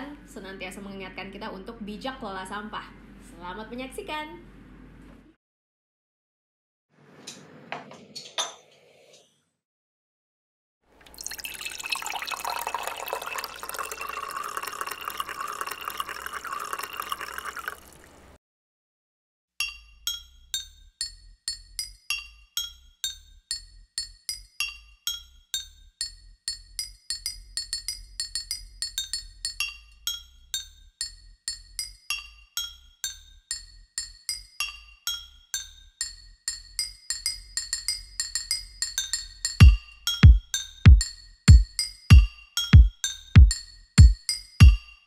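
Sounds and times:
water poured into glass jar: 11.0 - 18.3
pitched glass clinks melody: 11.1 - 17.8, 24.0 - 45.0.

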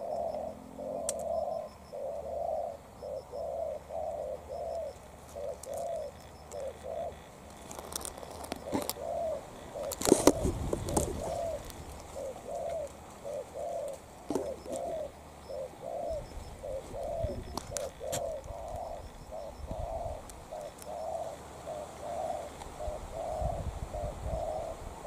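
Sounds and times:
dove cooing: 0.0 - 25.0
rustling: 7.4 - 9.1, 9.8 - 15.1.

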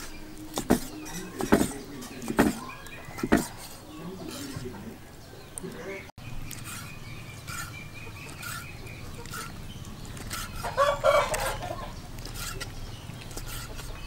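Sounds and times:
chickens clucking: 0.0 - 14.0
knife chopping on wooden board: 0.5 - 3.6.

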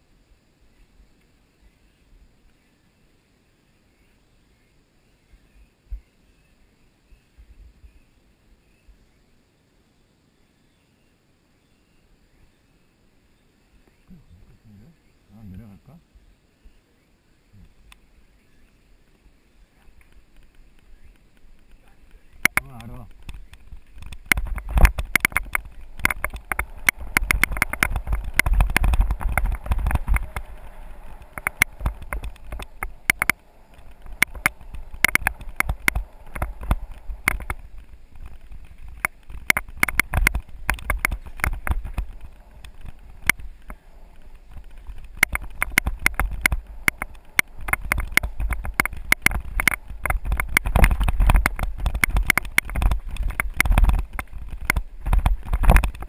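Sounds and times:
wind rumble on microphone: 7.1 - 8.1, 17.5 - 56.0
mountain bike clattering: 19.8 - 56.0.

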